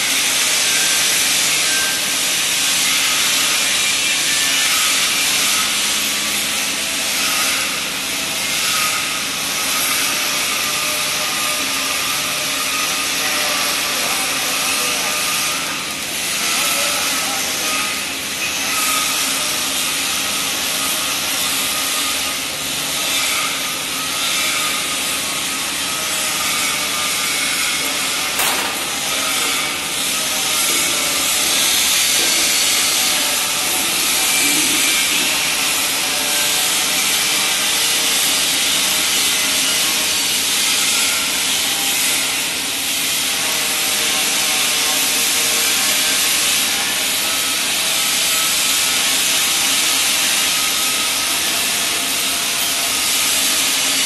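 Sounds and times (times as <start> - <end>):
welding hiss and crackle: 0.0 - 54.0.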